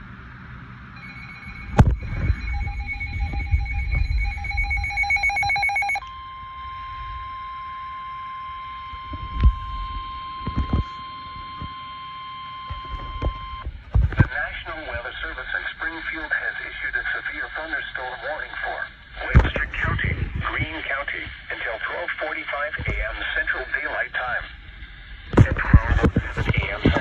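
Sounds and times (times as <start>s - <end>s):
steady warning alarm tone: 0.8s - 19.8s
pulsing electronic beeps: 1.0s - 13.6s.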